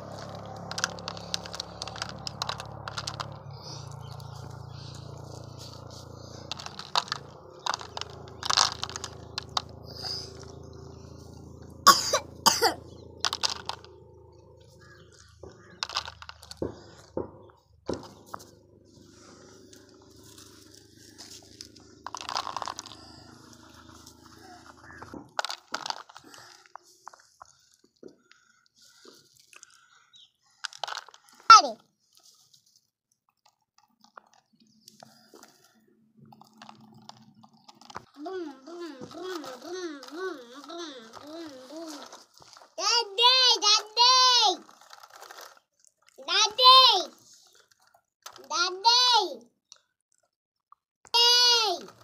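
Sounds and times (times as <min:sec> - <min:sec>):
feed pellets rattling into plastic: 0:00.0 - 0:10.4, 0:13.2 - 0:13.9, 0:15.6 - 0:17.1, 0:20.2 - 0:24.1, 0:24.7 - 0:26.8, 0:30.6 - 0:31.5, 0:36.2 - 0:38.3, 0:39.0 - 0:45.6.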